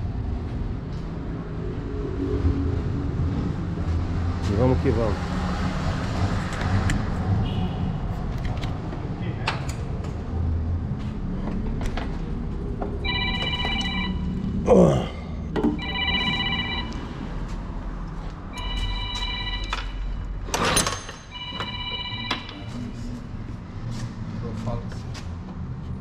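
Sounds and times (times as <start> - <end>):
phone ringing: 13.0 - 14.6, 15.7 - 17.3, 18.5 - 20.4, 21.3 - 22.9.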